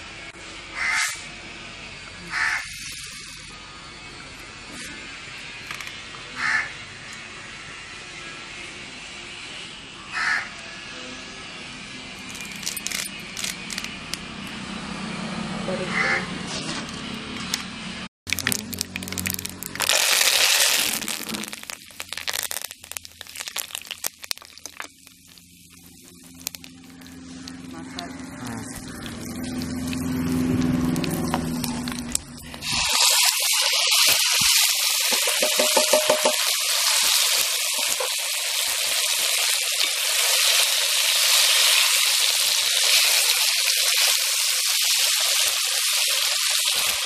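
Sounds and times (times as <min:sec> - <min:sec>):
crow cawing: 0:00.8 - 0:01.2, 0:02.3 - 0:02.7, 0:06.4 - 0:06.7, 0:10.1 - 0:10.5
oil crackling and popping: 0:12.2 - 0:14.2, 0:18.3 - 0:47.0
leaves sizzling in hot oil: 0:18.3 - 0:47.0.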